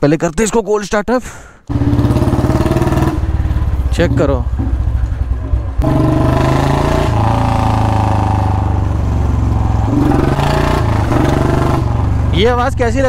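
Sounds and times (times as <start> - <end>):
motorcycle engine exhaust note: 1.7 - 12.4.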